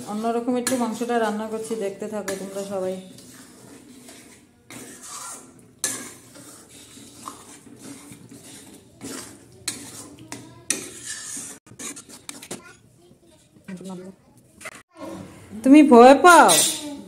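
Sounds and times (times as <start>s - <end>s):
metal pans clanking: 0.0s - 12.8s, 16.2s - 17.0s
spatula scraping through curry: 0.0s - 13.9s.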